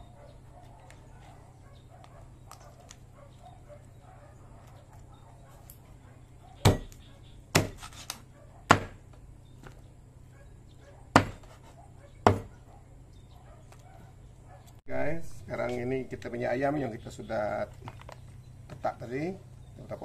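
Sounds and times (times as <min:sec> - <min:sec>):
knife chopping on cutting board: 0:06.6 - 0:09.0, 0:11.2 - 0:12.5.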